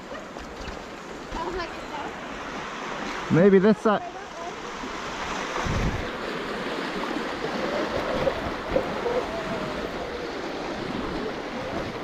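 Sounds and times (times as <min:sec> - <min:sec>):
wind rush on microphone: 0:04.8 - 0:12.0.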